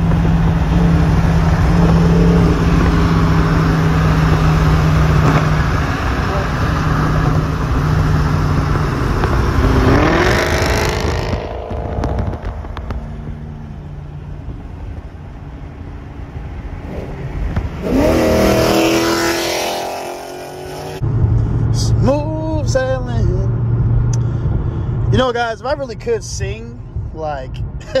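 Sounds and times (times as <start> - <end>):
car engine accelerating hard: 0.0 - 15.2, 16.4 - 21.5
highway road and wind noise: 0.0 - 28.0.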